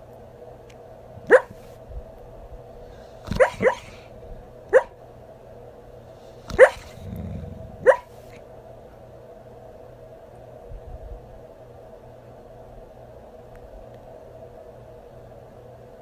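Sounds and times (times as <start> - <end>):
sleeping dog muffled woofs: 1.2 - 1.8, 2.9 - 4.1, 4.7 - 5.0, 6.4 - 8.4
dog low rumble: 1.2 - 4.9, 6.4 - 8.4.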